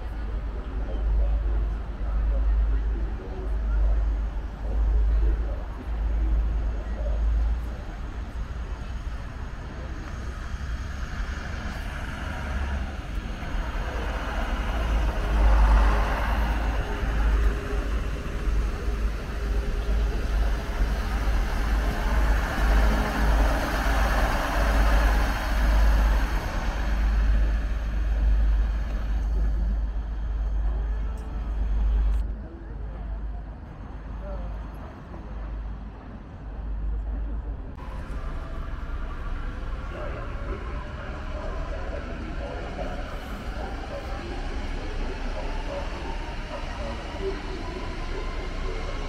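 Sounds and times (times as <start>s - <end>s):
train rushing past: 0.0s - 32.2s, 37.7s - 49.0s.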